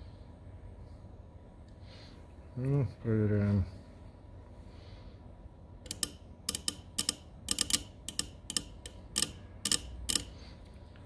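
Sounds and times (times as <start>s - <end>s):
relay clicking: 5.8s - 10.4s.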